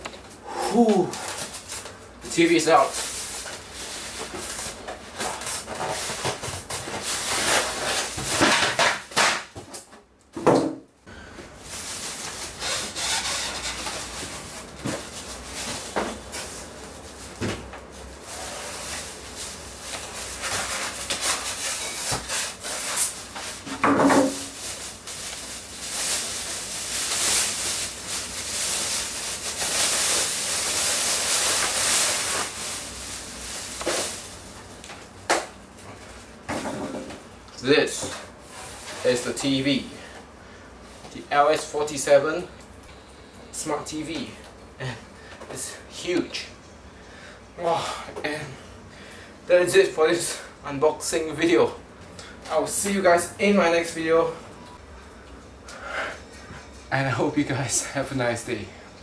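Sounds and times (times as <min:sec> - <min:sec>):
plastic bag rustling and crinkling: 0:01.0 - 0:08.9, 0:11.6 - 0:35.0
foam packing pieces rubbing: 0:02.6 - 0:09.4, 0:11.6 - 0:17.4, 0:18.0 - 0:23.7, 0:24.3 - 0:34.7.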